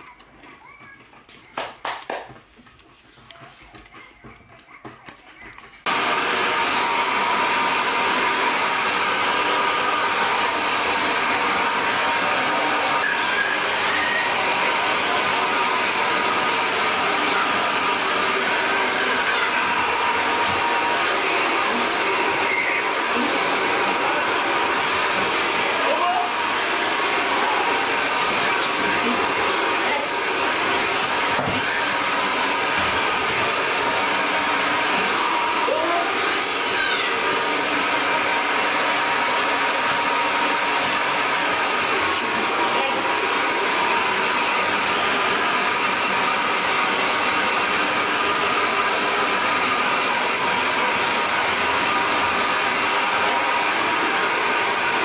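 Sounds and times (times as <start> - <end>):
hair dryer running: 5.8 - 55.0.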